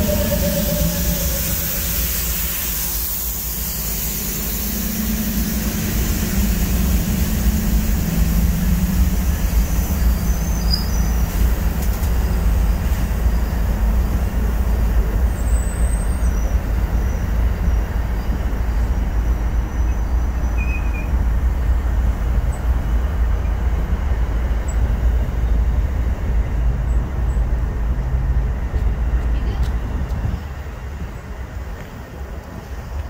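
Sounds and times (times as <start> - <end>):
steady low hum: 0.0 - 15.4
train wheels rumbling on rails: 0.0 - 33.0.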